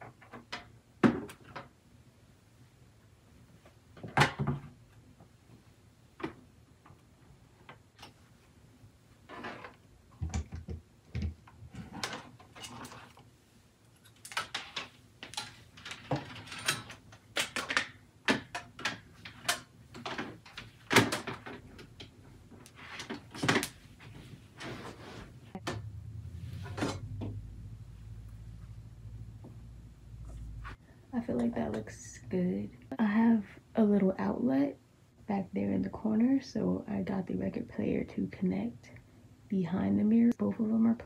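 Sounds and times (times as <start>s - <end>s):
power cords rustling: 9.3s - 27.4s.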